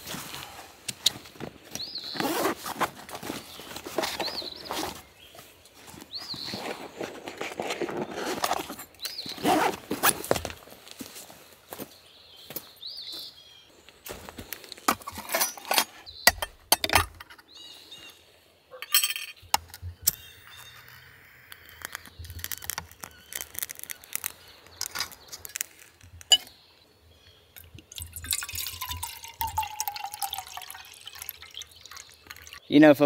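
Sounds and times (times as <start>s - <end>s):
camp cooking gear clinking: 1.0s - 10.6s, 14.7s - 18.1s, 18.7s - 32.7s
water pouring into metal cup: 27.8s - 32.6s.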